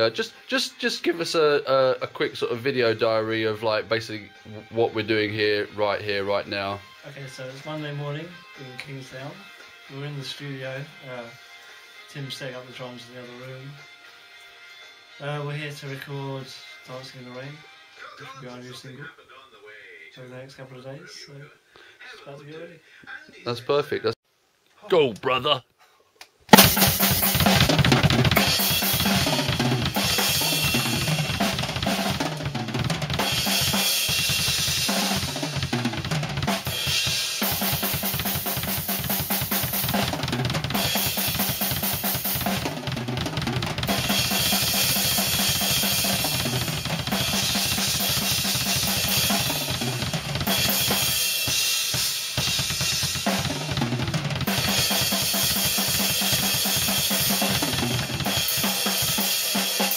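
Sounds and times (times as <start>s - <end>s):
drum kit rock beat: 0.0s - 8.1s, 26.5s - 59.9s.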